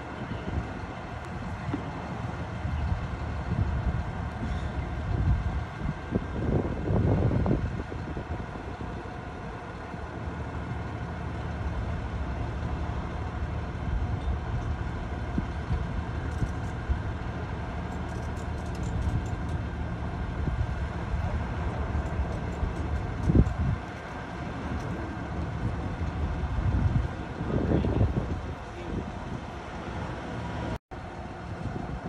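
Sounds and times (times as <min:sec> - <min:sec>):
tow truck engine humming: 0:00.0 - 0:32.0.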